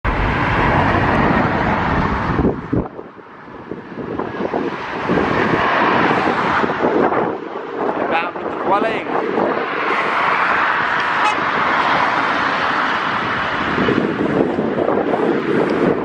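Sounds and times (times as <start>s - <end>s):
steady roar: 0.0s - 2.9s
heavy rumble: 0.0s - 16.0s
wind buffeting microphone: 0.0s - 16.0s.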